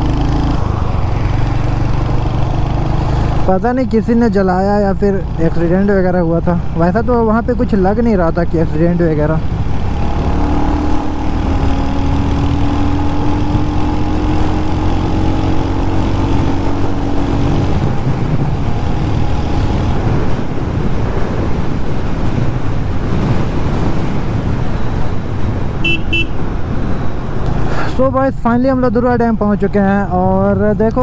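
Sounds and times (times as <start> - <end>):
wind on microphone: 9.4 - 27.9.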